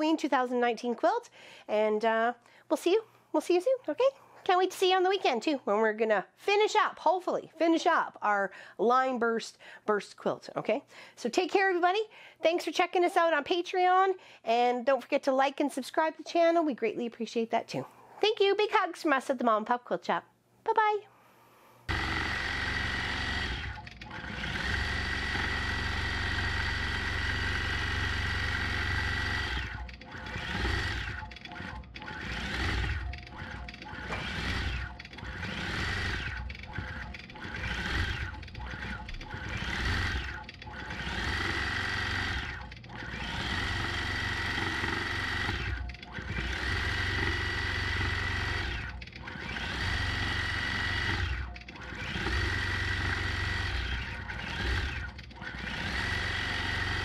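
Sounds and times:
quilting machine stitching: 21.9s - 57.0s.

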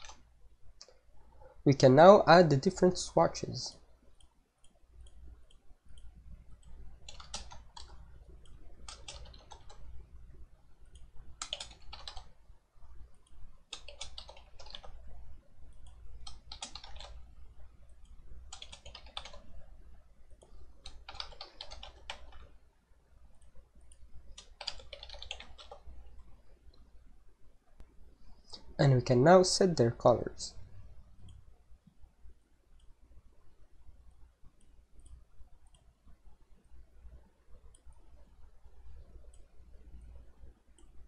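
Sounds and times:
typing on keyboard: 0.0s - 0.2s, 6.6s - 9.9s, 10.9s - 12.4s, 13.7s - 15.1s, 15.7s - 17.2s, 18.5s - 19.5s, 20.4s - 22.6s, 24.3s - 25.9s
low steady hum: 0.0s - 41.0s.

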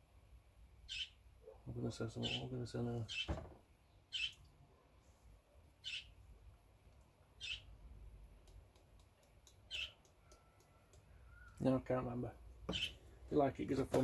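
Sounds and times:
faint bird chirps: 0.8s - 4.5s, 5.8s - 6.2s, 7.4s - 7.8s, 9.6s - 11.8s, 12.7s - 13.0s.

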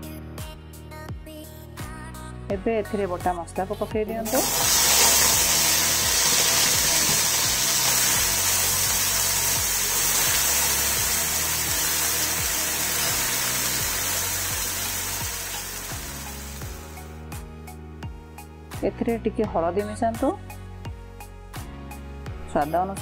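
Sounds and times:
paste sizzling in hot oil: 4.3s - 17.1s.

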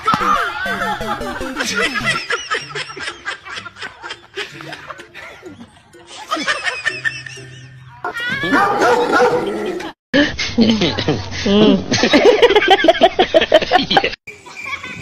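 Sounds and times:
person laughing: 0.0s - 7.7s
background music: 0.0s - 9.9s.

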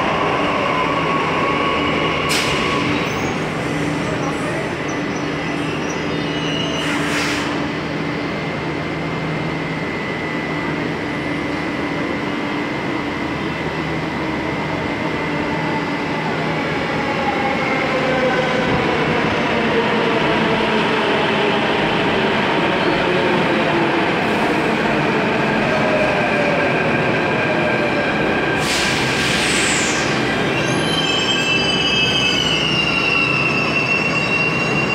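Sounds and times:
train whining tones: 27.6s - 34.9s
high wheel squeal: 29.5s - 34.9s.

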